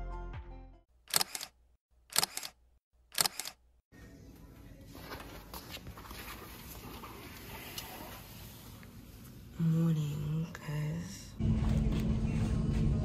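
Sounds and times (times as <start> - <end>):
camera shutter clicking: 1.1 - 3.6.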